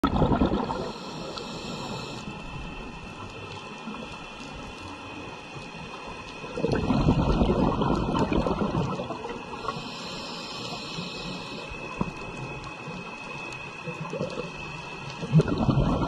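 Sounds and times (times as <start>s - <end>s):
regulator exhaled bubbles: 0.0s - 2.2s, 6.5s - 9.8s, 15.2s - 16.0s
regulator inhale hiss: 0.6s - 3.3s, 9.3s - 13.6s.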